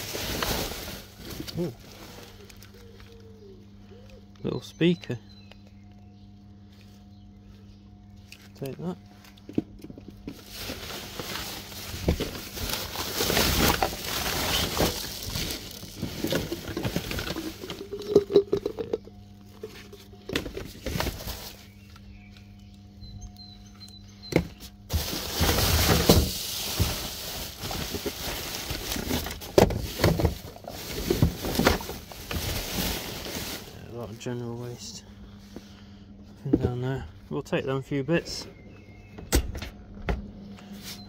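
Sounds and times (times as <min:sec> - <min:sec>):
plastic bags rustling and crinkling: 0:00.0 - 0:02.9, 0:10.2 - 0:18.9, 0:19.6 - 0:21.8, 0:24.9 - 0:34.9
faint steady hum: 0:00.0 - 0:41.0.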